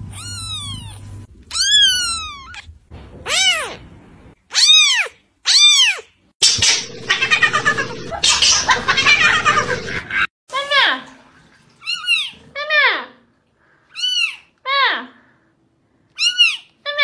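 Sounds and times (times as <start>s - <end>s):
kitten meowing: 0.1s - 2.7s, 3.3s - 3.8s, 4.5s - 6.0s
cat yowling: 0.1s - 3.8s, 4.5s - 10.3s.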